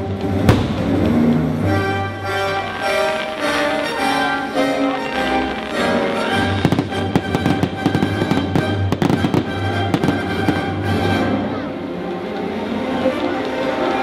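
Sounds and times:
fireworks bangs and crackles: 0:00.0 - 0:04.4, 0:05.0 - 0:11.5
music: 0:00.0 - 0:14.0.

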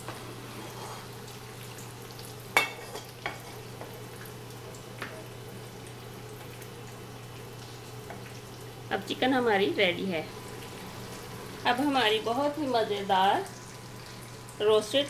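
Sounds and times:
chicken sizzling in frying pan: 0:00.0 - 0:15.0
steady low hum: 0:08.5 - 0:15.0.

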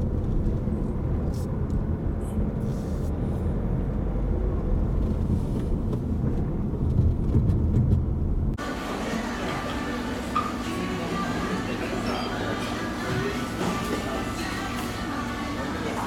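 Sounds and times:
car engine and road noise: 0:00.0 - 0:09.0.

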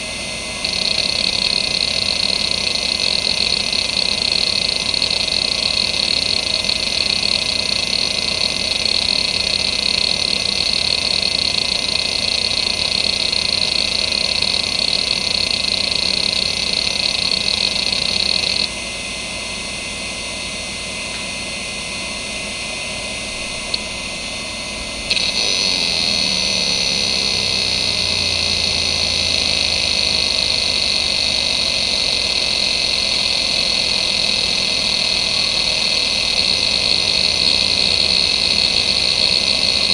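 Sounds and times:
hard drive seeking: 0:00.6 - 0:18.7, 0:23.3 - 0:39.9
sharp click: 0:23.5 - 0:24.0.

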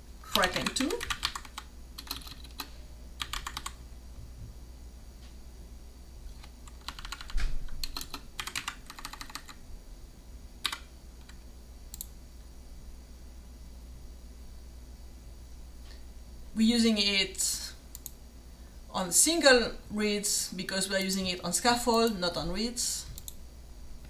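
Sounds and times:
computer keyboard typing: 0:00.3 - 0:03.8, 0:06.3 - 0:09.6, 0:10.6 - 0:11.4.

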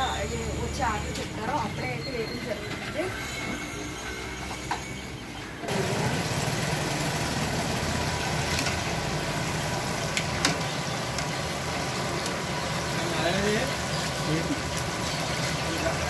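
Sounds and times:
food sizzling in hot oil: 0:05.7 - 0:16.0.

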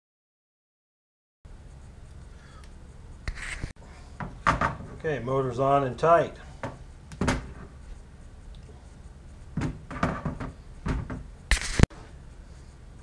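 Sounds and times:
metal plates clunking on table: 0:09.6 - 0:11.2
short loud burst of noise: 0:11.5 - 0:11.9.

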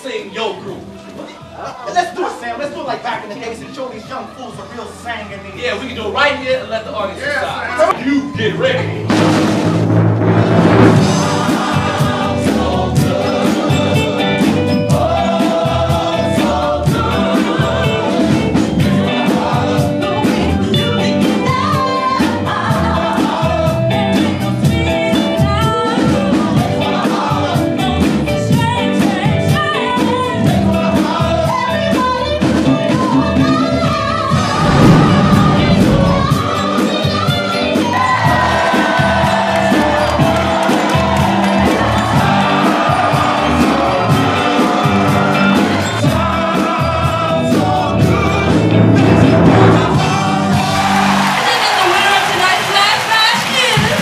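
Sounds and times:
band with drum beat: 0:08.5 - 0:33.4, 0:34.3 - 0:54.0
vocal group singing harmonies: 0:10.9 - 0:51.5.

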